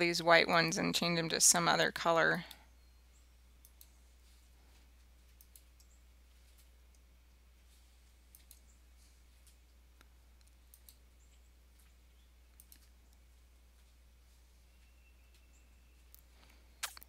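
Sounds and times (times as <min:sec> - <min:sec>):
steady low hum: 0:00.0 - 0:17.0
computer mouse clicks: 0:03.6 - 0:04.0, 0:05.2 - 0:07.0, 0:08.3 - 0:08.7, 0:09.4 - 0:11.0, 0:12.5 - 0:13.2.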